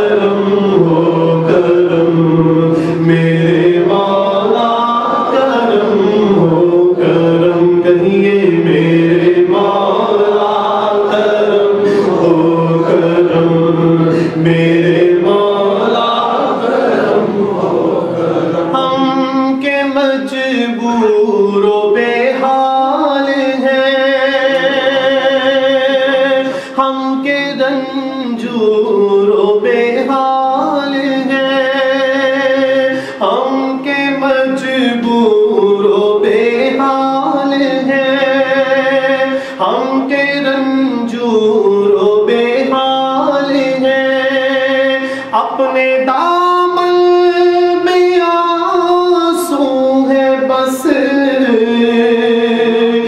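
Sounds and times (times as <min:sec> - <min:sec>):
man chanting into a microphone: 0:00.0 - 0:17.5, 0:18.1 - 0:53.0.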